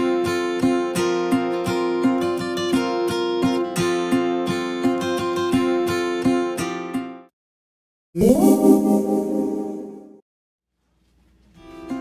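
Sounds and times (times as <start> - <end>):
strummed acoustic guitar: 0.0 - 7.2.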